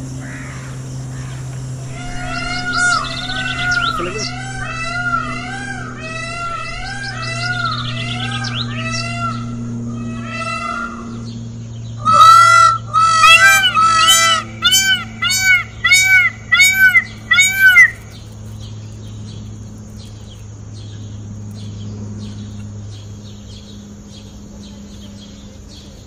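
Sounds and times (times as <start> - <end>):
peacock calling: 0.0 - 19.4
faint low hum: 0.0 - 26.0.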